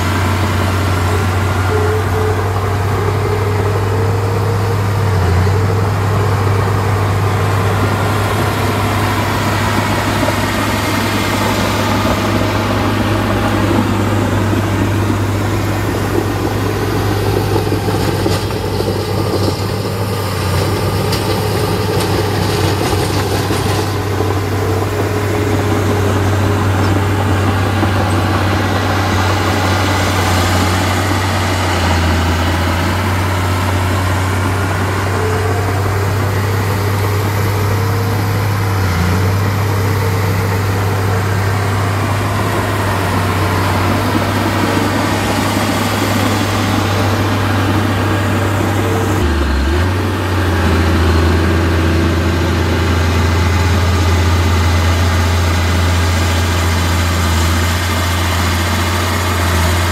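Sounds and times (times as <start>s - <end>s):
diesel engine droning: 0.0s - 59.9s.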